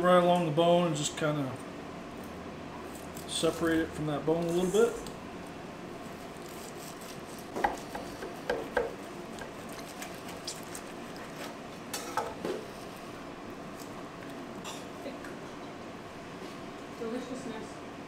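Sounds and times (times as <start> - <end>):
knife cutting meat: 6.2 - 11.6.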